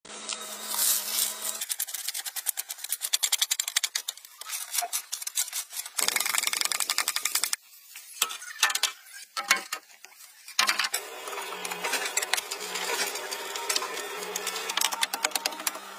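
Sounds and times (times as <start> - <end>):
bamboo poles dropping knocks: 8.2 - 9.9.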